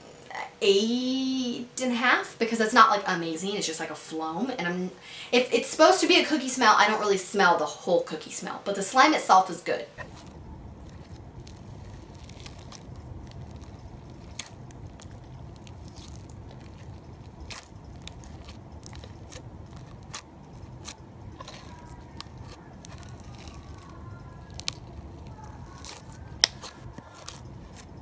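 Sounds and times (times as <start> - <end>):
slime crackling and popping: 10.0 - 28.0
steady low hum: 10.0 - 28.0.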